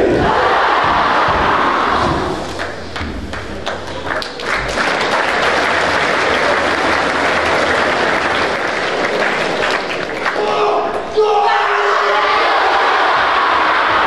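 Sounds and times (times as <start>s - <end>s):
audience applauding in a hall: 2.4s - 10.5s.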